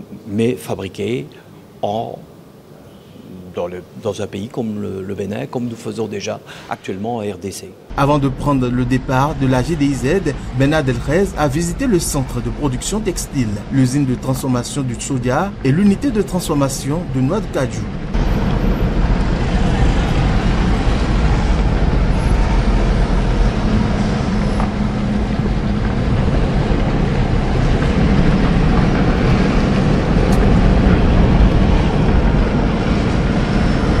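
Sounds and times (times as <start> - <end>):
car engine and road noise: 7.9 - 34.0.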